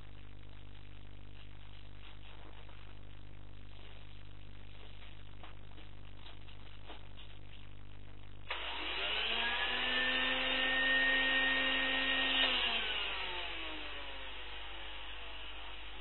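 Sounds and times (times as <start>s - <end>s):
vacuum cleaner motor whining: 8.5s - 16.0s.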